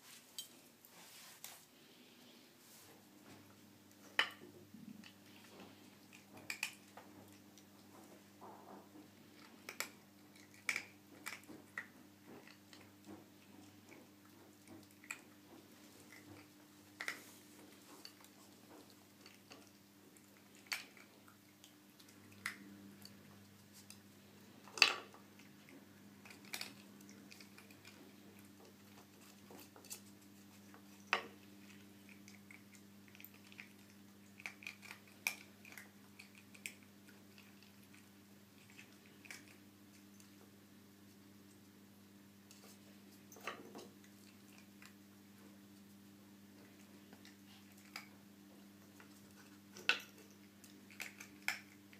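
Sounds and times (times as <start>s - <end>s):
low steady hum: 0.0s - 51.9s
puppy chewing: 3.2s - 51.9s.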